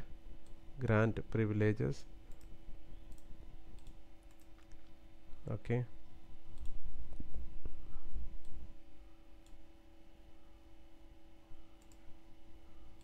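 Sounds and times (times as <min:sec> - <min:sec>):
low hum: 0:00.0 - 0:13.0
computer mouse clicks: 0:02.3 - 0:02.5, 0:03.1 - 0:05.0, 0:06.6 - 0:06.8, 0:11.8 - 0:12.0.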